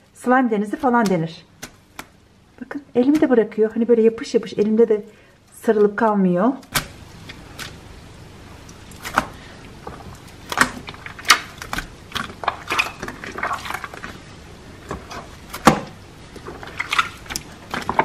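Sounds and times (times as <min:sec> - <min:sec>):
hands squelching runny slime: 0:06.6 - 0:18.0.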